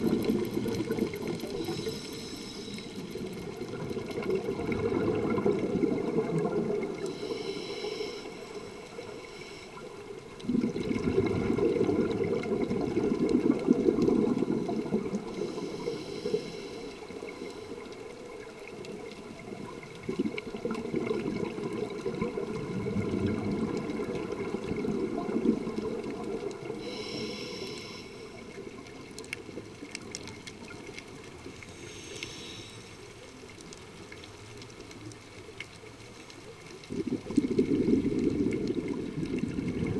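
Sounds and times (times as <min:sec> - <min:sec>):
exhaled bubbles rumbling: 0:00.0 - 0:02.3, 0:03.0 - 0:07.3, 0:10.1 - 0:16.0, 0:17.1 - 0:27.0, 0:36.5 - 0:39.9
regulator hiss on inhale: 0:01.2 - 0:04.2, 0:06.8 - 0:10.2, 0:14.7 - 0:18.1, 0:26.6 - 0:28.7, 0:31.5 - 0:33.3.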